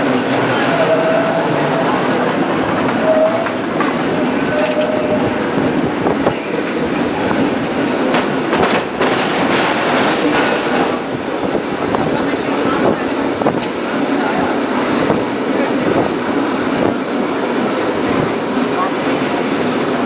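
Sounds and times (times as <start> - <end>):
cable car rattling rumble: 0.0 - 20.0
sharp clacks: 7.7 - 11.0.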